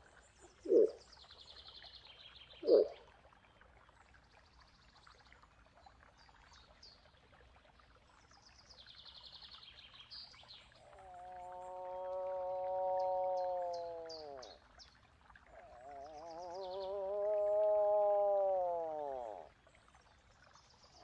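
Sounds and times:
bird trilling: 2.6s - 3.0s.

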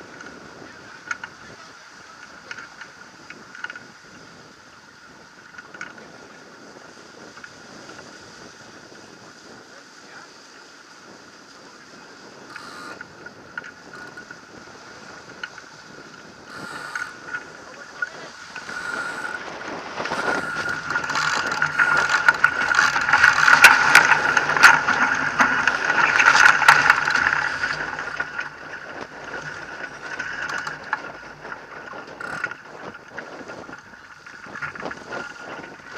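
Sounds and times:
water rushing along hull: 0.0s - 35.9s
wind noise: 0.0s - 35.9s
clicks and rattles of deck gear: 1.0s - 1.4s, 2.2s - 3.9s, 5.5s - 6.0s, 18.5s - 35.9s.

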